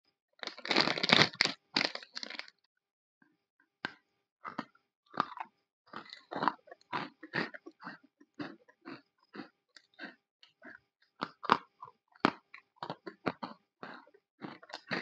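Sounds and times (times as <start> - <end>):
crunchy chewing of biscuit: 0.4 - 2.5, 3.8 - 15.0
plastic packet crinkling: 0.4 - 2.5.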